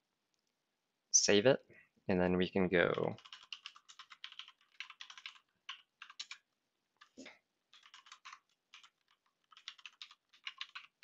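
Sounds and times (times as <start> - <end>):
computer keyboard typing: 2.9 - 11.0.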